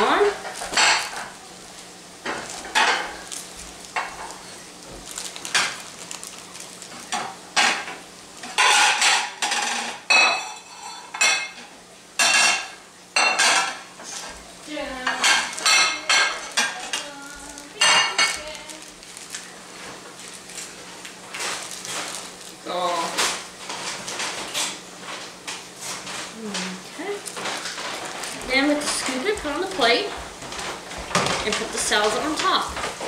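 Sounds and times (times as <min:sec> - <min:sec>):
plastic packet crinkling: 0:02.3 - 0:07.5, 0:15.4 - 0:24.6, 0:27.2 - 0:30.0.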